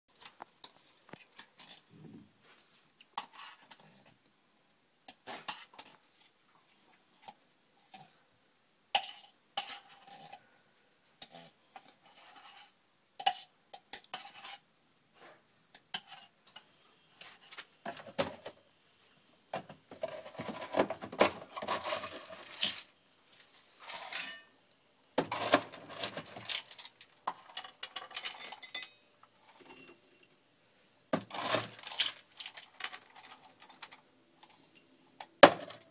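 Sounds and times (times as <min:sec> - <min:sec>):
rustling: 0:18.8 - 0:24.5, 0:30.8 - 0:34.8.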